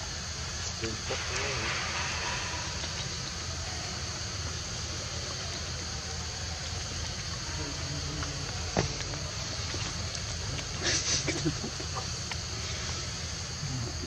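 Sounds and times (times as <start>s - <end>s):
low rumble: 0.0s - 10.8s
insect drone: 0.0s - 14.0s.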